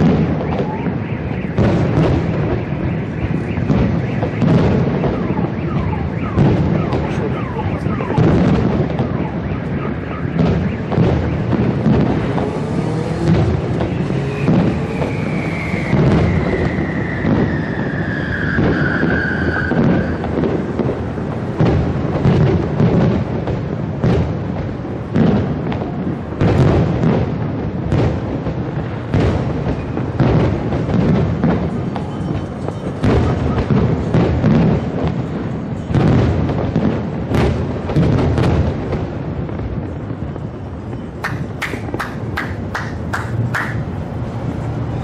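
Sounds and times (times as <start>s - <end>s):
firework shell bursts and booms: 0.0s - 40.2s, 40.9s - 44.6s
sharp firework bangs: 0.0s - 45.0s
whistle falling in pitch: 14.8s - 20.2s.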